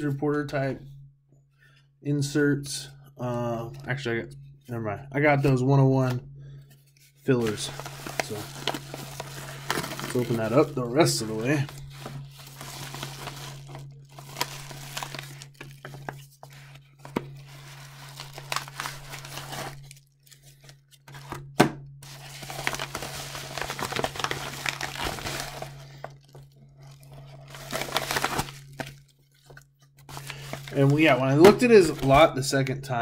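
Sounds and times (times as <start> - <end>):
cards in plastic sleeves handled: 7.0 - 21.4, 22.0 - 32.3
paper mailer tearing and crinkling: 7.3 - 21.4, 22.0 - 32.3.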